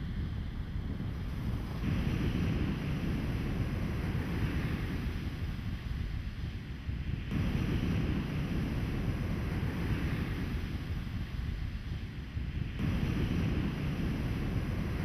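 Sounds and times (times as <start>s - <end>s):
surf washing on beach: 0.0s - 15.0s
wind rumbling on microphone: 0.0s - 15.0s.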